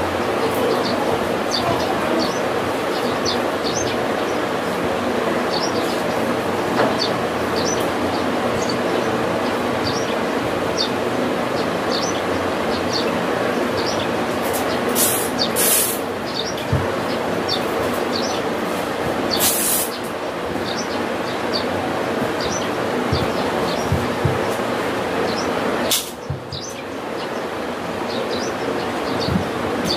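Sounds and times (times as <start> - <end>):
brief rasping hisses: 15.0 - 16.0, 19.4 - 20.0.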